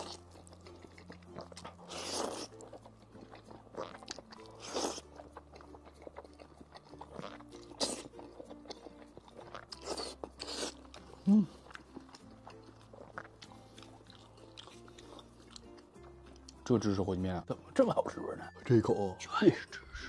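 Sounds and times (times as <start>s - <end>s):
person slurping noodles: 0.0s - 0.2s, 1.8s - 2.6s, 3.7s - 5.2s, 7.2s - 8.3s, 9.8s - 11.7s
wet chewing: 0.0s - 16.7s
soft background music: 0.0s - 20.0s.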